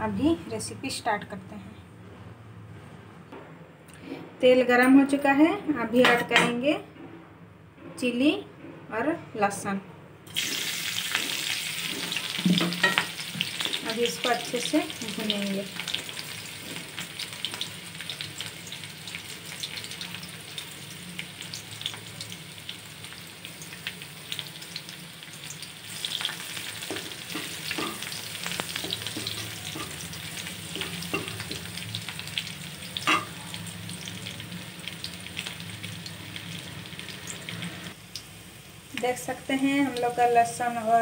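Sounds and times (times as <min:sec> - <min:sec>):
garlic and chillies sizzling in oil: 0:10.3 - 0:41.0.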